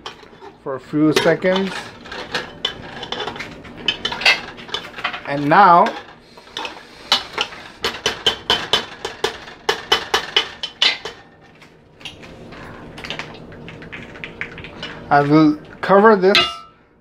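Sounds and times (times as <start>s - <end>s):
metal ladle knocking on pot: 16.4s - 16.7s.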